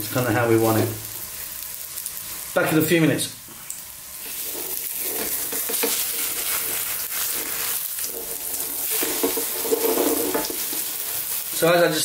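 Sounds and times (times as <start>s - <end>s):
omelette sizzling in oil: 0.0s - 12.0s
plastic spatula scraping a pan: 4.3s - 11.0s.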